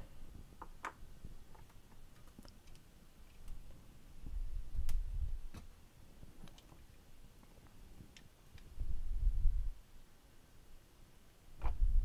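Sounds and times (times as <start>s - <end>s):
small plastic clicks and taps: 0.6s - 3.6s.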